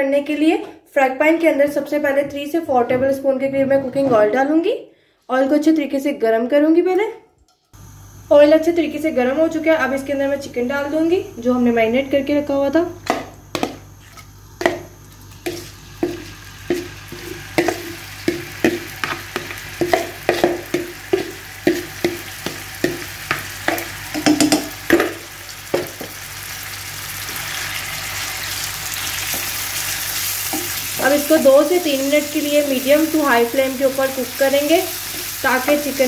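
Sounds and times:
chicken sizzling in oil: 0:15.2 - 0:36.0
wooden spatula stirring: 0:15.4 - 0:24.5
knocks against a bowl: 0:24.1 - 0:25.1.

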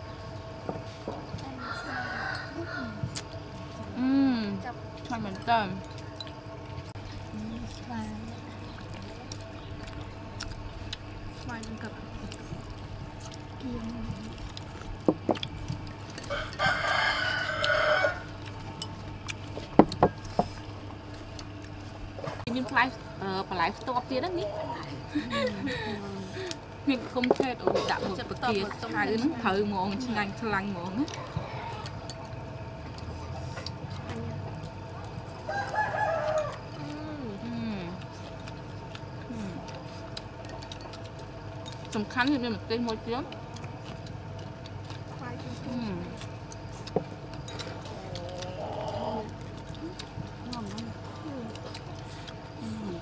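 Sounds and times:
rooster crowing: 0:01.4 - 0:03.1, 0:16.2 - 0:18.4, 0:35.4 - 0:37.0.

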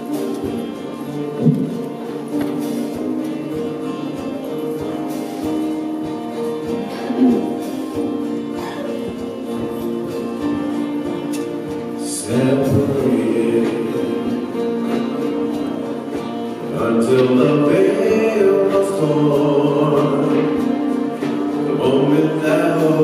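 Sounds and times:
band playing church music: 0:00.0 - 0:23.0
guitar: 0:00.0 - 0:23.0.

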